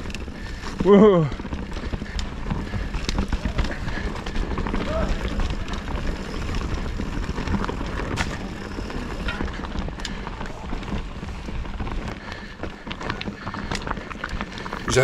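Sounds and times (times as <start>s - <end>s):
bike rattling over roots: 0.0s - 15.0s
tyres rushing on dirt: 0.0s - 15.0s.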